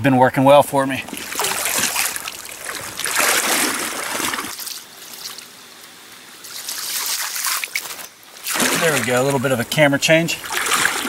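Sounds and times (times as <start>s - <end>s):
water sloshing around wading legs: 1.0s - 9.6s, 10.4s - 11.0s
stream current rushing: 1.0s - 11.0s.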